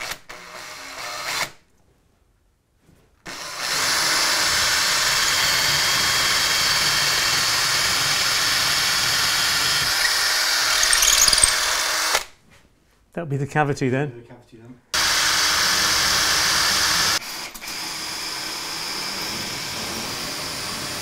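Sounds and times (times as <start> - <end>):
power drill boring into concrete: 3.3 - 12.2.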